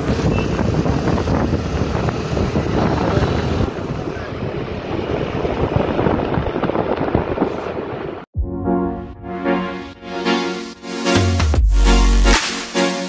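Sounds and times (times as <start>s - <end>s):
road and traffic noise: 0.0s - 8.3s
wind buffeting microphone: 0.0s - 8.3s.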